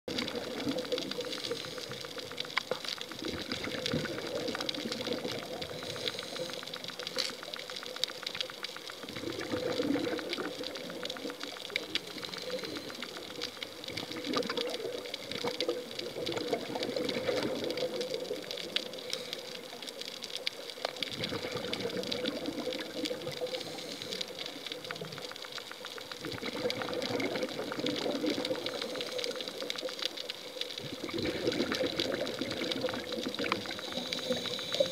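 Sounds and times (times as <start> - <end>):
exhaled bubbles: 0.1 - 34.9
snapping shrimp crackle: 0.8 - 16.4
regulator breathing: 5.8 - 7.1, 33.8 - 34.9.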